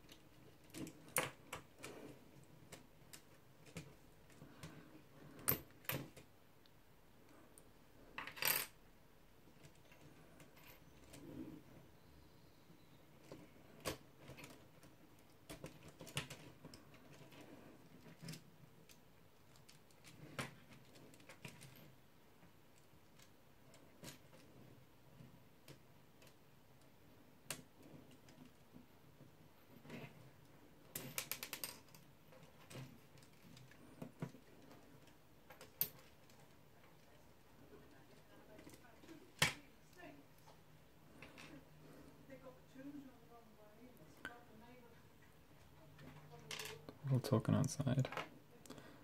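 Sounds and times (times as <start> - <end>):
plastic parts clicking and rattling: 0.0 - 6.3, 13.2 - 22.0, 29.8 - 37.1.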